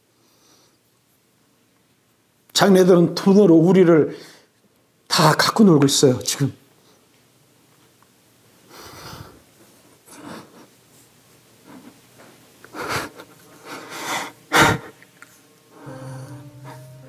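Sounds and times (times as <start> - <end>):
shaky breaths and sniffs: 8.7 - 15.1
man sobbing: 15.8 - 17.0.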